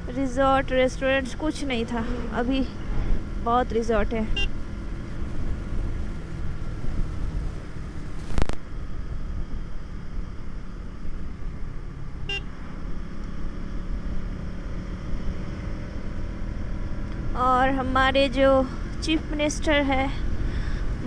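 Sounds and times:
motorcycle engine and road rumble: 0.0s - 21.0s.

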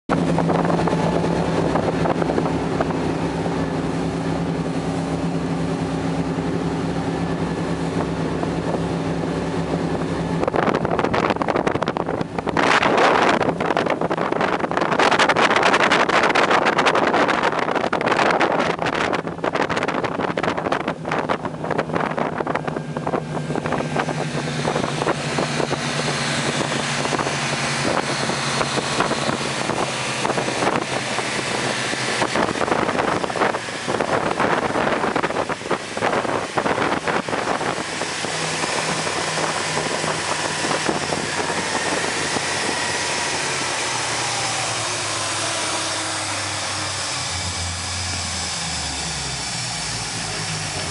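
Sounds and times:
powerboat engines running: 0.1s - 50.9s
rushing water: 0.1s - 50.9s
wind buffeting microphone: 0.1s - 50.9s.

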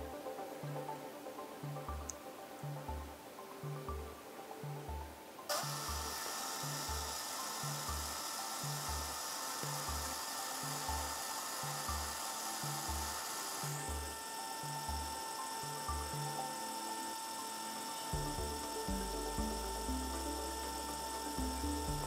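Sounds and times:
music with a steady beat: 0.0s - 22.0s
photo printer feeding paper: 5.5s - 15.8s.

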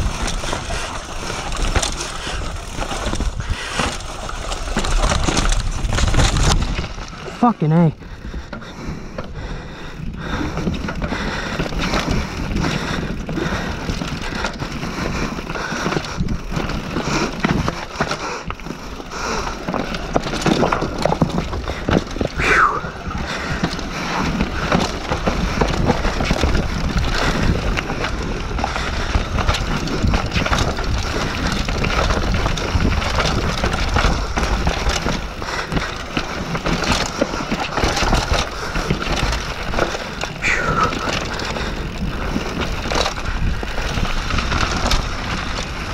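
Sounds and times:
wind noise on microphone: 0.0s - 7.2s, 20.4s - 45.9s
bike rattling over bumps: 0.0s - 45.9s
bike tyres rolling over dirt: 0.0s - 45.9s.

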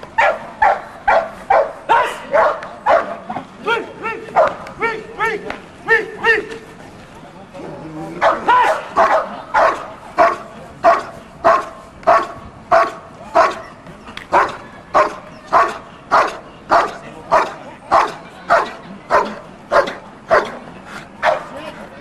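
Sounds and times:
dog barking rhythmically: 0.2s - 3.2s, 4.4s - 4.6s, 8.2s - 13.7s, 14.3s - 20.6s, 21.2s - 21.5s.

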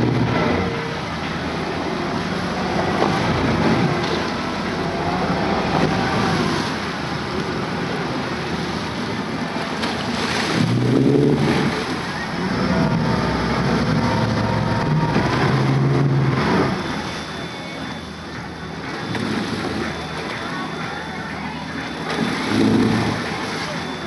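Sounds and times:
outboard motor running: 0.0s - 24.0s
water washing against hull: 0.0s - 24.0s.

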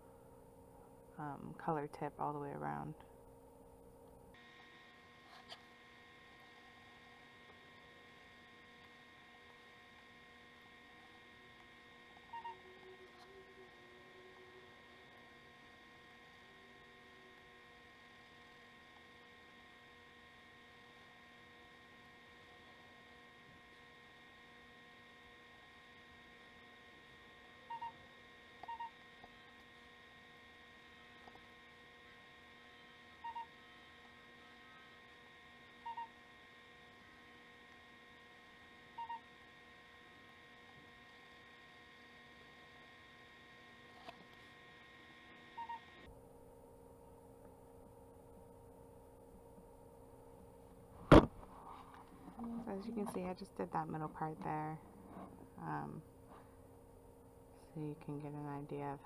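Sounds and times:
electrical hum with whine: 0.0s - 59.0s.

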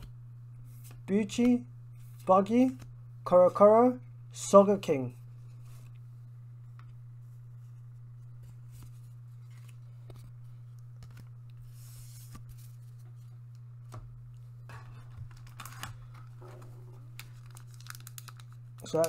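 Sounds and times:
steady low hum: 0.0s - 19.0s
cards rustling: 8.3s - 13.3s, 15.3s - 19.0s.

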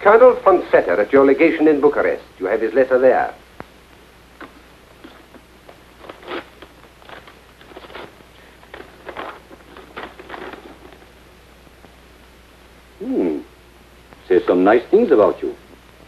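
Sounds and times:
steady low hum: 0.0s - 16.0s
paper rustling and crackling: 4.4s - 11.2s.

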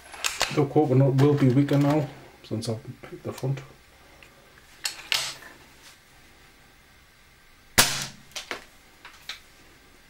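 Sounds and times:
air rifle pellet hitting coconut: 7.8s - 8.6s.

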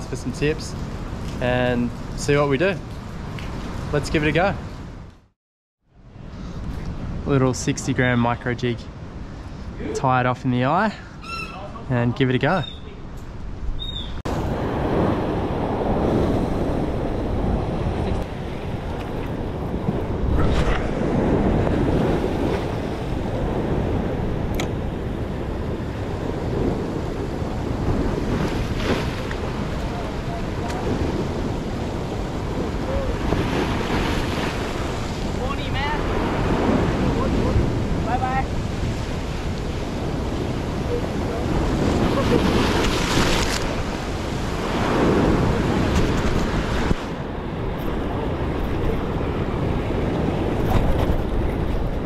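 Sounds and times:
wind buffeting microphone: 13.4s - 52.0s
surf washing against rocks: 14.3s - 52.0s.

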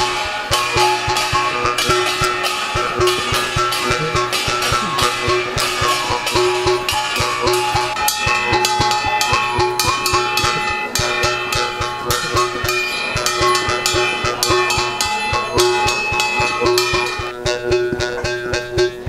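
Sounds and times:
brass cymbals and plate strokes: 0.0s - 17.4s.

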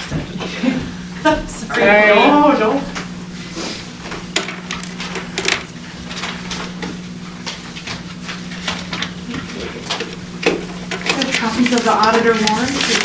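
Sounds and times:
steady low hum: 0.0s - 13.0s
paper rustling: 10.9s - 13.0s.

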